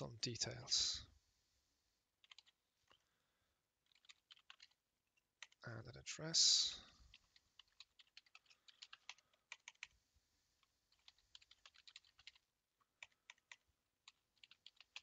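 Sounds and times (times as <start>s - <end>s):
typing on computer keyboard: 2.2s - 3.0s, 3.8s - 5.6s, 7.1s - 10.0s, 10.6s - 15.0s.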